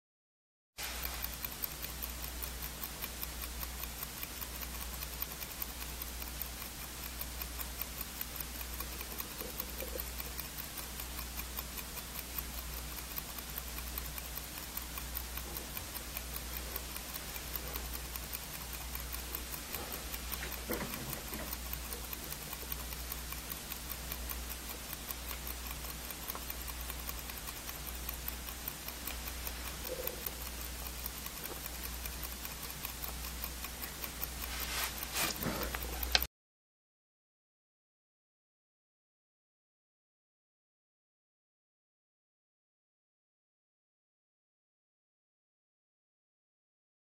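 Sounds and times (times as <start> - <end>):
watch ticking rapidly: 0.8 - 36.3.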